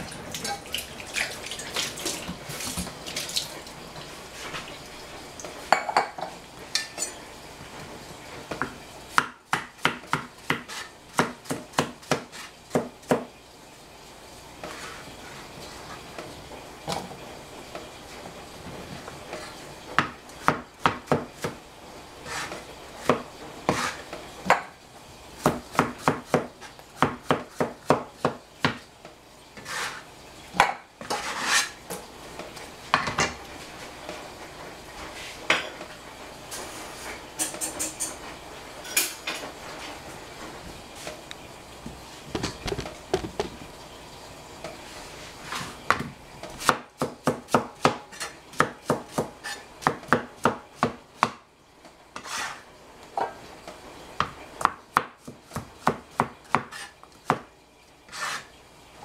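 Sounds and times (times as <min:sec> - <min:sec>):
cleaver chopping on cutting board: 0:08.6 - 0:13.3, 0:25.4 - 0:28.8.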